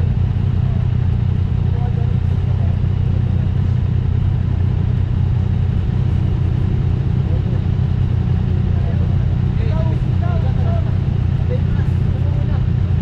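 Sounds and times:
motorcycle engine idling: 0:00.0 - 0:13.0.

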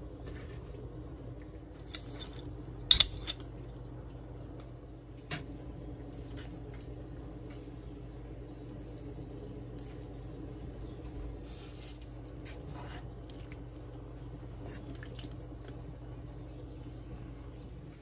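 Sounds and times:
pot boiling: 0:00.0 - 0:03.7, 0:04.4 - 0:18.0
metal utensils clinking on pot: 0:01.8 - 0:03.4.

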